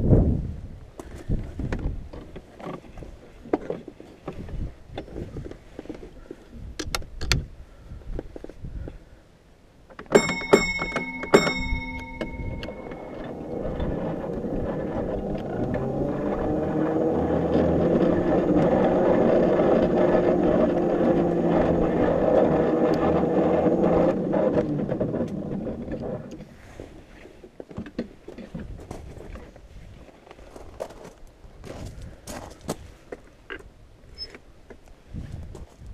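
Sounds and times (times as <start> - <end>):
sharp metallic clanks: 10.0 - 16.2
electric locomotive whine: 10.1 - 26.4.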